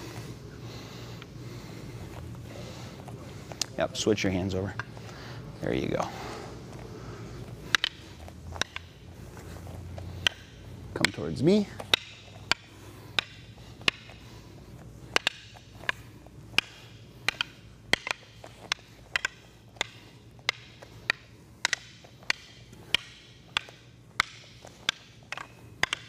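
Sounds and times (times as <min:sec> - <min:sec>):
sticks and knives clacking: 0:07.4 - 0:26.0.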